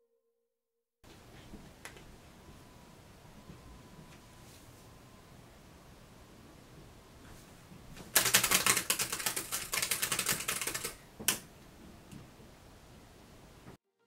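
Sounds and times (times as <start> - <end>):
fast typing on laptop keyboard: 8.0 - 11.4.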